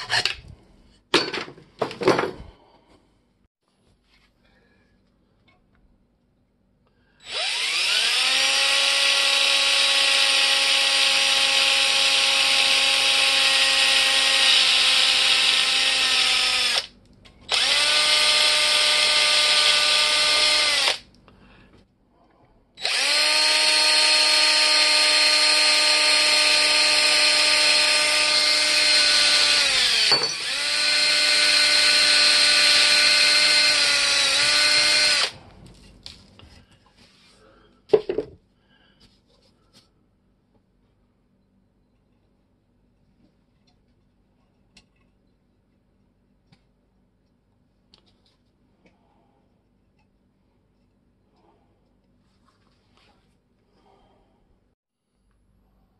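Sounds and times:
electric drill boring into wood: 0:07.2 - 0:16.9, 0:17.5 - 0:21.1, 0:22.8 - 0:35.4.

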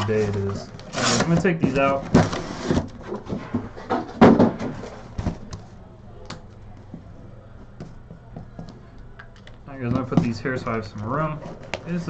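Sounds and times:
cardboard boxes knocking and scraping: 0:01.4 - 0:05.5.

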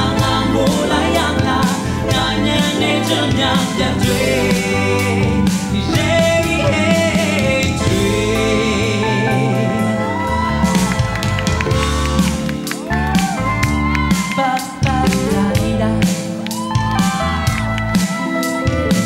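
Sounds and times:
man singing pop song: 0:00.0 - 0:10.0, 0:14.1 - 0:16.4
instrumental backing with drum beat: 0:00.0 - 0:19.0.

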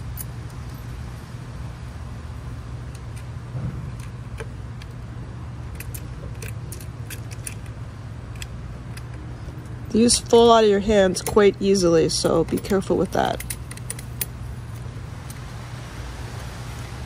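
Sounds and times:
metal bolts clicking and clinking: 0:00.0 - 0:01.0, 0:05.6 - 0:15.4
steady low hum: 0:00.0 - 0:17.0.

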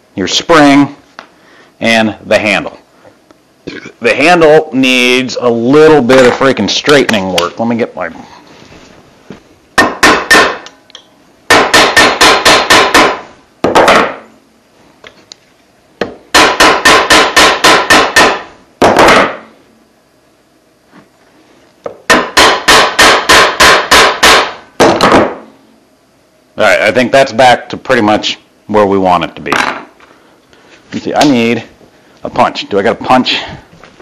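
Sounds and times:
hammer striking metal: 0:09.8 - 0:10.8, 0:11.5 - 0:14.3, 0:16.0 - 0:19.5, 0:22.1 - 0:25.4.

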